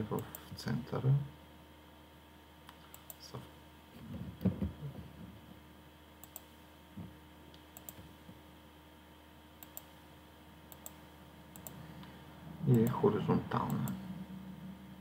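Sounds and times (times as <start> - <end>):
faint steady hum: 0.0 - 15.0
computer mouse clicking: 2.7 - 3.2, 6.2 - 6.5, 7.5 - 8.1, 9.6 - 10.0, 10.7 - 11.8, 13.6 - 14.0
low rumbling noise: 11.3 - 15.0.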